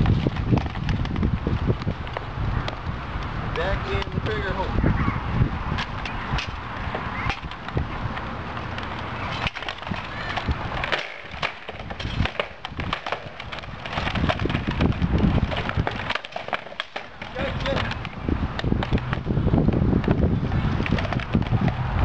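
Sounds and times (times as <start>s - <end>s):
hard objects clacking: 5.8s - 19.3s.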